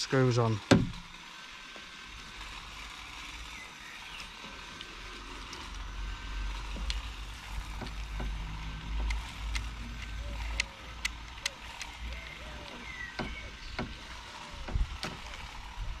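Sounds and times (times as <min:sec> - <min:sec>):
steady low rumble: 0:05.0 - 0:16.0
plastic parts clicking and rubbing: 0:06.6 - 0:16.0.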